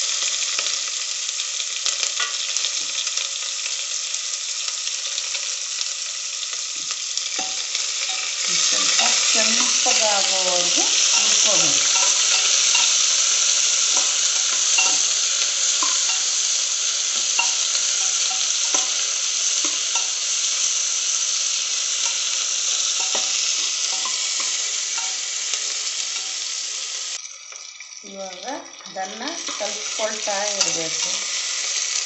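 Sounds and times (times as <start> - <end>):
onions sizzling in hot oil: 0.0 - 32.0
steel spoon scraping pan: 7.4 - 20.2, 22.0 - 26.4.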